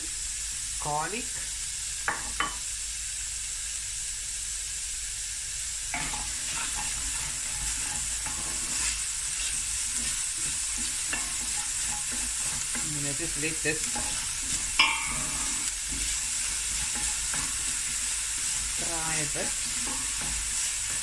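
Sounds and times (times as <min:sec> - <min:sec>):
onion and garlic sizzling in oil: 0:00.0 - 0:21.0
wooden spoon scraping a pot: 0:06.0 - 0:21.0.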